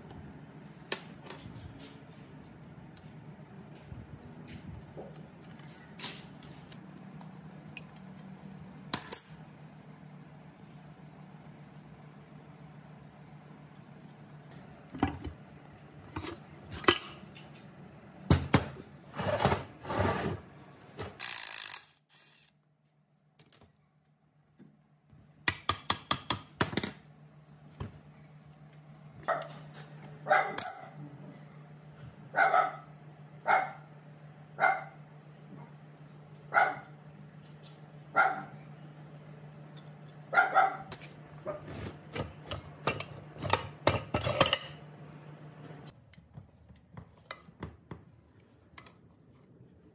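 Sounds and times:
wrench clicks: 0:21.2 - 0:22.5.

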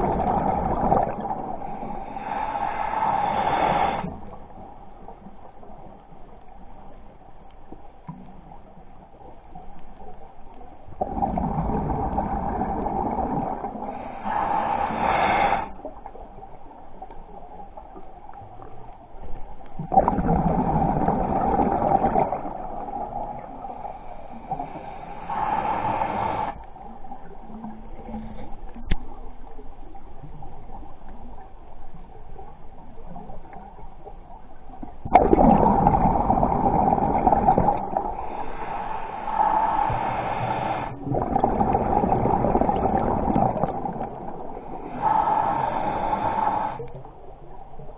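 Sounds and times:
exhaled bubbles bursting: 0:00.0 - 0:01.6, 0:11.0 - 0:14.1, 0:19.8 - 0:23.6, 0:35.0 - 0:38.4, 0:40.7 - 0:45.0
diver breathing through regulator: 0:00.0 - 0:04.3, 0:12.5 - 0:15.8, 0:23.6 - 0:26.7, 0:35.9 - 0:43.8, 0:44.4 - 0:46.9
faint steady whine: 0:00.0 - 0:47.9.

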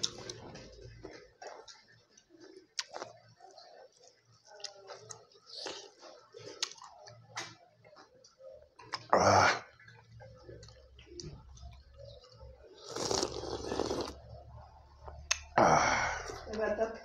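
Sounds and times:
person chewing: 0:00.0 - 0:07.2, 0:09.8 - 0:14.2, 0:15.0 - 0:15.6.

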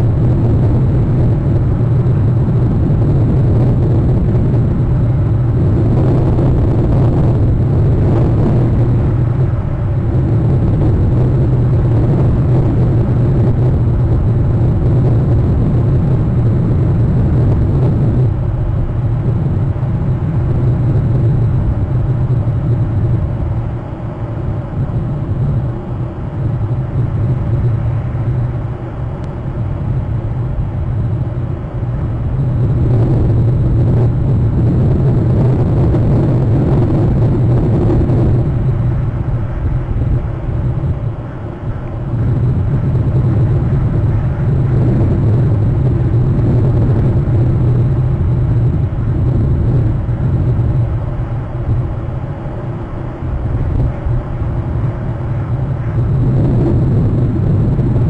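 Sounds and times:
low rumble: 0:00.0 - 0:58.0.

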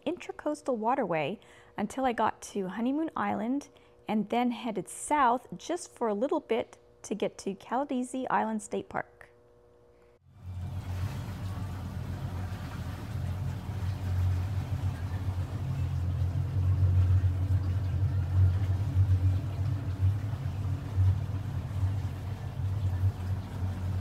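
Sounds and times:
outboard engine rumble: 0:10.3 - 0:24.0
wind and water rushing: 0:10.4 - 0:24.0.

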